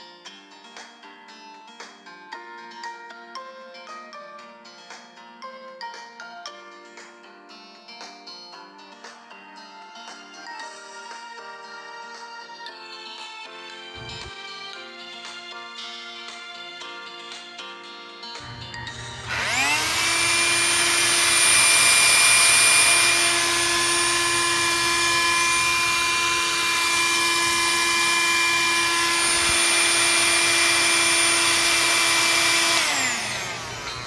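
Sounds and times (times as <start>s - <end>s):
handheld vacuum cleaner whining: 14.0s - 14.3s, 18.4s - 34.0s.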